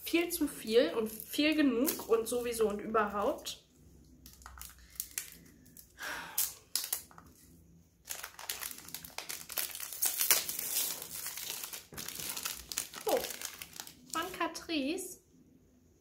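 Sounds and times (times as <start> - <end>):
wrapping paper crinkling and tearing: 4.2 - 14.5.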